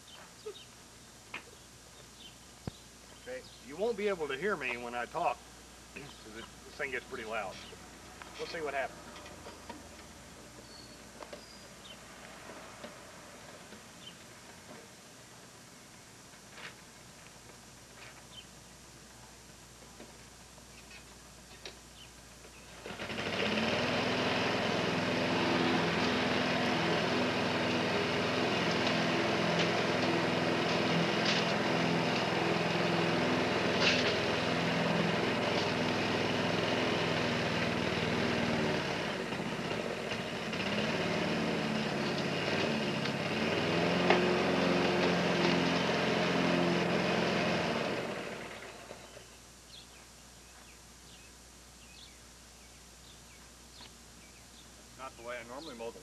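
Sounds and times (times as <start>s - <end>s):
lawn mower engine running: 21.4s - 49.3s.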